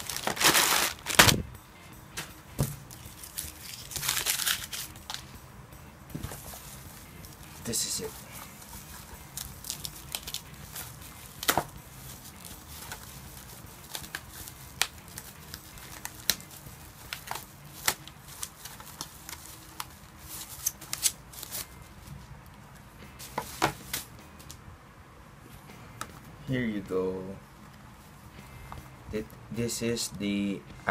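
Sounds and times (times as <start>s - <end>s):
bubble wrap crinkling: 0.0s - 1.4s, 2.8s - 5.3s, 6.3s - 22.1s.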